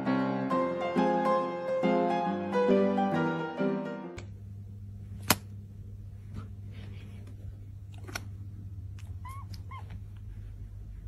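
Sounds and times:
low steady hum: 4.2s - 11.0s
kitten mewing: 9.0s - 10.0s.

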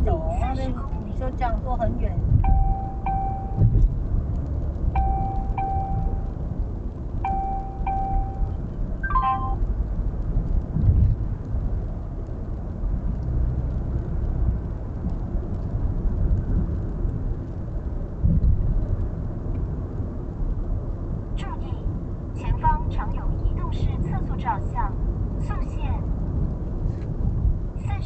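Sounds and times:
road and tyre noise: 0.0s - 28.0s
low thumps: 2.2s - 4.1s
short electronic chime: 5.0s - 6.2s, 7.3s - 9.6s.

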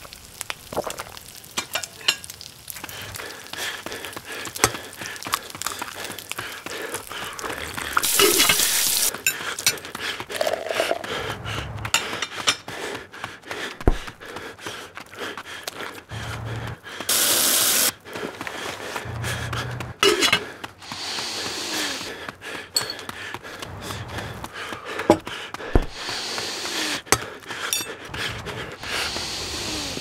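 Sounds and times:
egg sizzling in a pan: 0.0s - 9.1s, 17.1s - 17.9s
loud hiss bursts: 8.0s - 9.1s, 17.1s - 17.9s, 20.9s - 22.0s, 28.8s - 30.0s.

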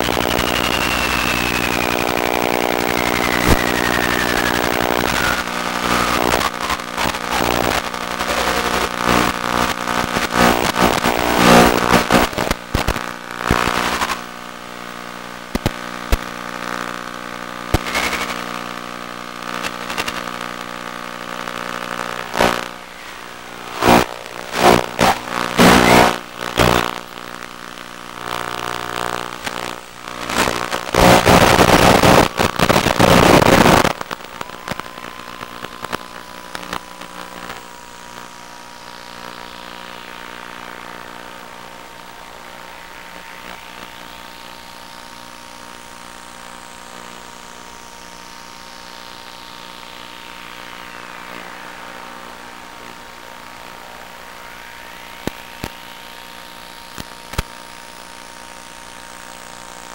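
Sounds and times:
model plane motor and propeller: 0.0s - 6.8s.

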